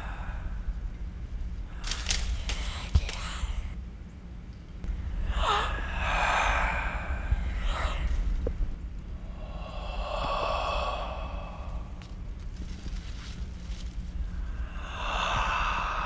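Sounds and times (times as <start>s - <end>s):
steady low rumble: 0.0s - 16.0s
person sighing heavily: 5.2s - 8.2s.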